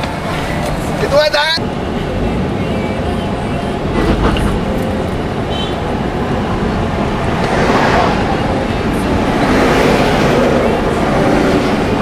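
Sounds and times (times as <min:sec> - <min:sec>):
car road and wind rumble: 0:00.0 - 0:12.0.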